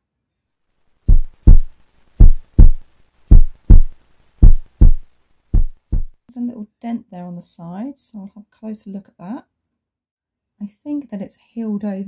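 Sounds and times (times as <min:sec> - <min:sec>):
heartbeat thumps: 0:01.1 - 0:06.2.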